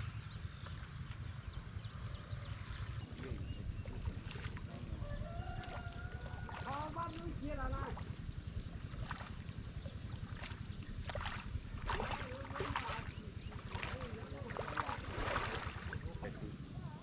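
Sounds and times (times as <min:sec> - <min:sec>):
low wind rumble: 0:00.0 - 0:17.0
splashing through muddy water: 0:03.8 - 0:16.4.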